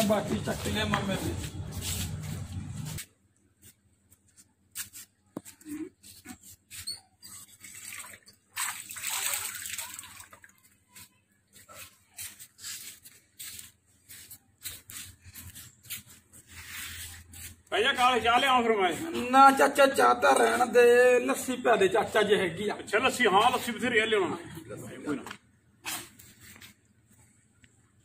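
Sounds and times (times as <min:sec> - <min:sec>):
small splashes and clicks: 0:07.6 - 0:11.1.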